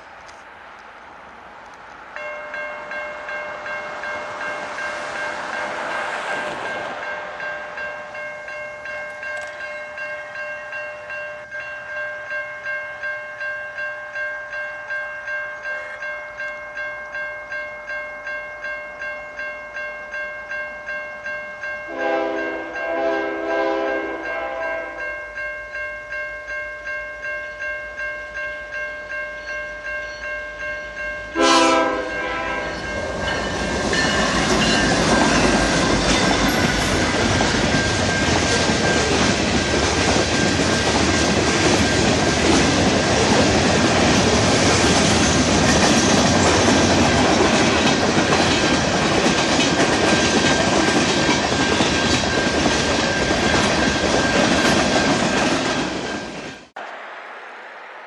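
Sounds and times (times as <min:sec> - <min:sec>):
diesel locomotive: 0:00.0 - 0:58.0
level crossing bell ringing: 0:02.2 - 0:23.4, 0:24.0 - 0:39.2
train horn blast: 0:21.9 - 0:25.0, 0:31.4 - 0:33.1.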